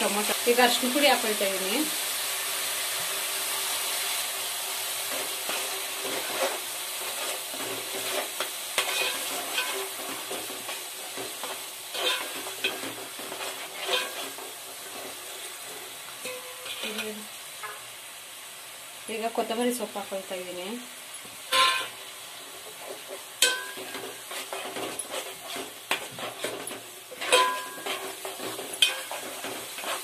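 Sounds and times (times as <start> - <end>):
masala sizzling in a pan: 0.0 - 30.0
spoon scraping and clicking on pan: 5.2 - 15.2, 22.6 - 30.0.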